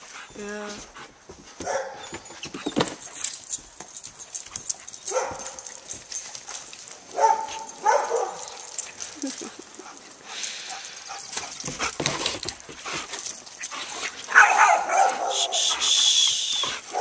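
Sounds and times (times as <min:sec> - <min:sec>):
dog barking excitedly: 0:01.6 - 0:02.2, 0:05.1 - 0:05.8, 0:07.1 - 0:08.8, 0:14.3 - 0:15.8, 0:16.7 - 0:17.0.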